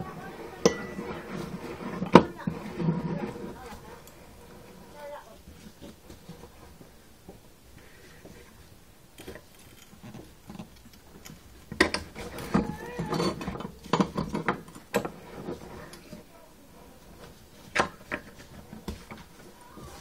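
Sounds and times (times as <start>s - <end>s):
metal clinking and scraping: 0.0s - 6.8s, 8.0s - 20.0s
sharp clicks and squeaky scrapes: 9.2s - 16.2s.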